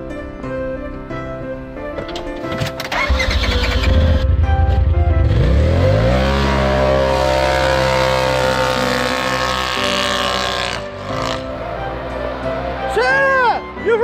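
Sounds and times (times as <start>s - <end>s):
vehicle engine revving: 2.9s - 12.6s.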